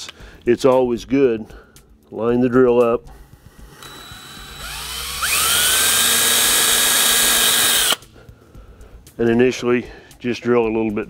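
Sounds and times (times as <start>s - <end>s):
cordless drill whining: 3.6s - 8.0s.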